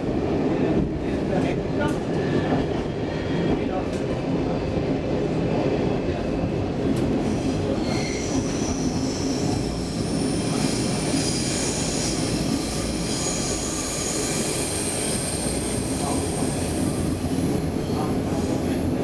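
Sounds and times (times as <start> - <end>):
train wheels rumbling on rail: 0.0 - 19.0
high-pitched wheel squeal: 7.4 - 15.9.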